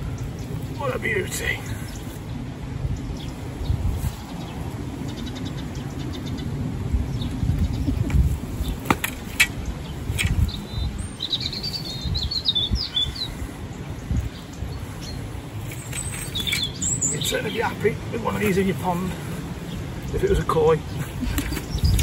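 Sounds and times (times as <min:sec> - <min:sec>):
small bird twittering: 0:07.1 - 0:18.5.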